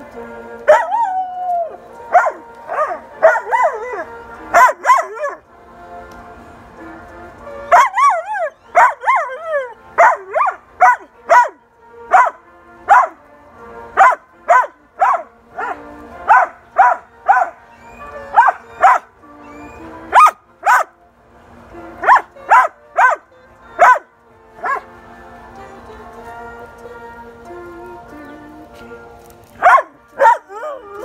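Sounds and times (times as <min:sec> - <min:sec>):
faint music: 0:00.0 - 0:31.0
puppy barking: 0:02.1 - 0:03.8, 0:04.5 - 0:05.4, 0:07.7 - 0:08.2, 0:08.8 - 0:09.3, 0:10.0 - 0:13.2, 0:14.0 - 0:17.6, 0:18.3 - 0:19.1, 0:20.1 - 0:20.9, 0:22.0 - 0:23.2, 0:23.8 - 0:24.0, 0:24.6 - 0:24.9, 0:29.6 - 0:30.5.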